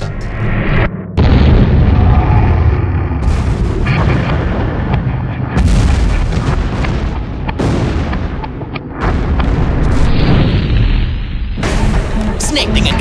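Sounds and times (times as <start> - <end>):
explosion booms: 1.2 - 12.1.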